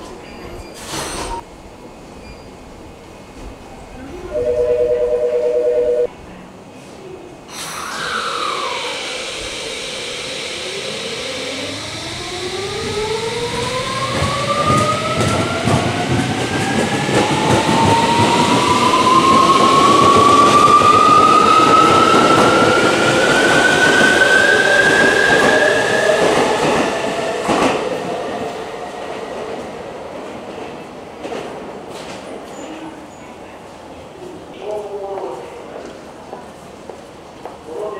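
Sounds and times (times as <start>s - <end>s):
two-note electronic tone: 4.3s - 6.1s
train motors whining: 7.5s - 15.4s.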